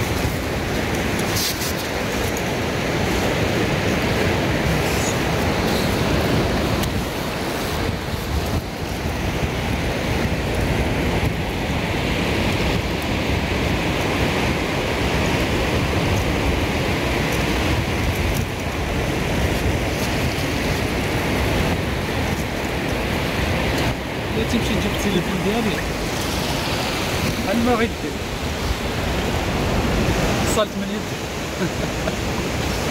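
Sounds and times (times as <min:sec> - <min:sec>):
surf washing on shore: 0:00.0 - 0:32.9
wind buffeting microphone: 0:00.0 - 0:32.9.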